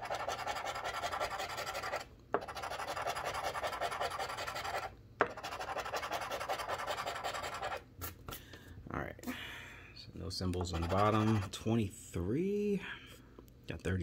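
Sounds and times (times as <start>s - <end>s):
coin scratching lottery ticket: 0.0s - 7.8s, 10.6s - 11.6s.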